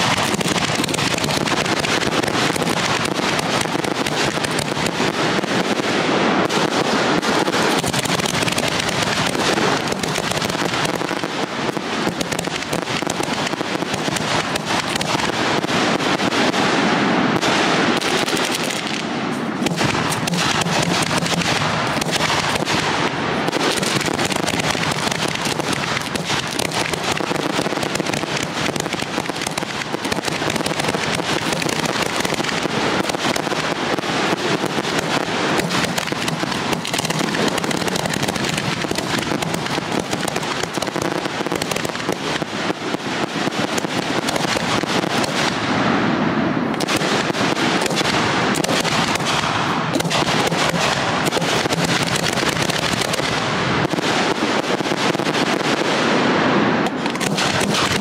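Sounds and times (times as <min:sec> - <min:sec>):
fireworks bursting and crackling: 0:00.0 - 0:58.0.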